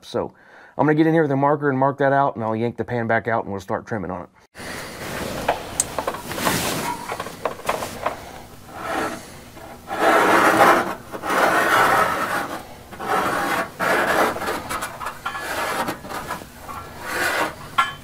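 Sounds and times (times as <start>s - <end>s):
marker scratching on sheet metal: 8.7s - 17.8s.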